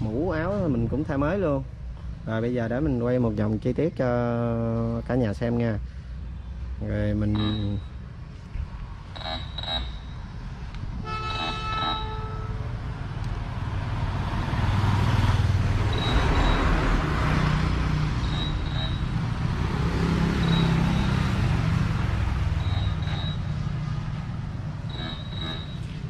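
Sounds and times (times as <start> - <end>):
vehicle engine rumble: 5.8 - 26.0
high-pitched double chirp: 11.1 - 12.6, 18.2 - 19.3, 20.2 - 21.5, 22.5 - 23.6, 24.8 - 26.0.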